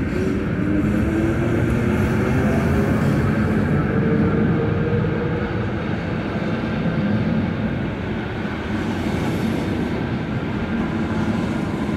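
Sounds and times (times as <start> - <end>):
rumble of wheels on track: 0.0 - 11.9.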